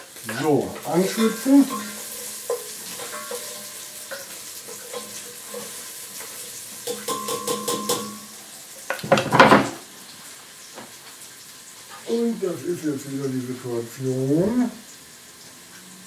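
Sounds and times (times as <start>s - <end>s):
onions frying in oil: 0.0s - 16.0s
quick taps on metal pot: 6.8s - 8.2s.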